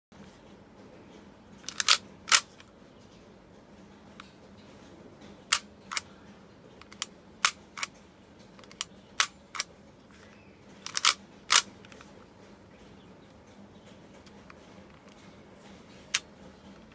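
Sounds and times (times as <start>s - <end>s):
hammer cocking clicks: 1.7s - 2.5s, 10.8s - 11.7s
pistol slide racking clicks: 1.7s - 2.5s, 10.8s - 12.0s.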